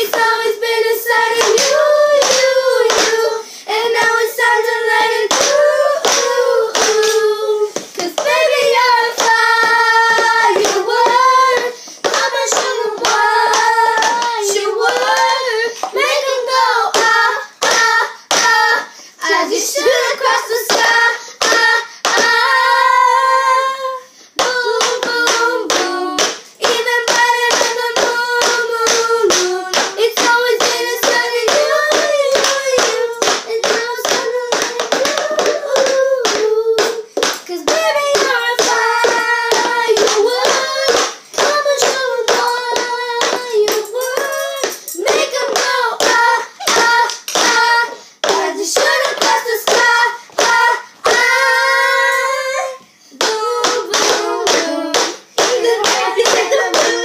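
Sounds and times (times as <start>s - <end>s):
girls singing together: 0.0s - 57.0s.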